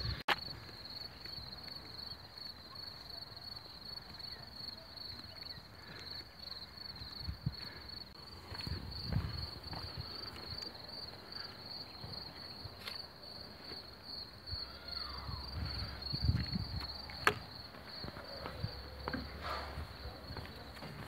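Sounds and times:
insects trilling: 0.0s - 21.0s
footsteps on wooden footbridge: 7.7s - 11.3s, 16.2s - 21.0s.

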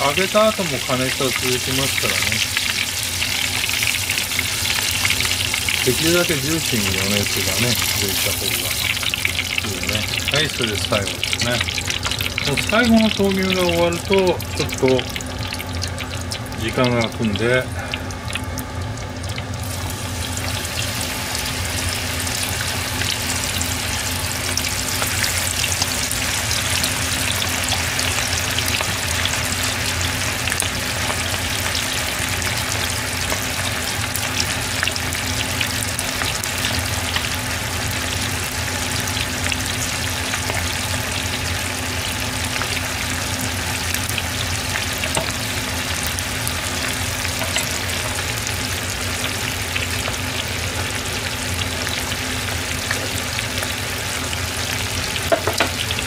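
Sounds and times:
chicken deep-frying in oil: 0.0s - 56.0s.

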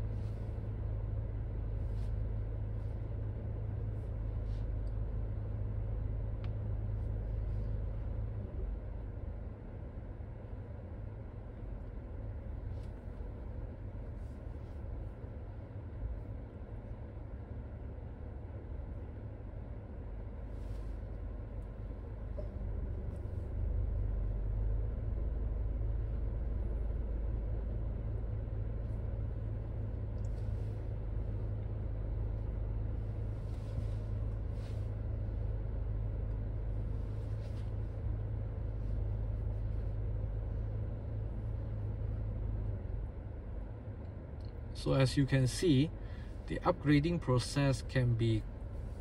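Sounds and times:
car engine idling: 0.0s - 49.0s.

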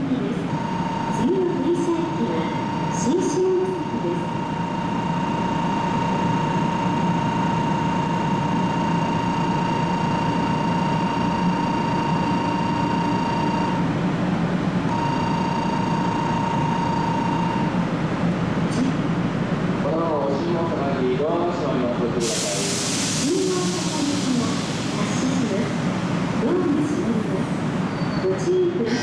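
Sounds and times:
train humming at platform: 0.0s - 29.0s
electronic departure bell: 14.9s - 17.7s.

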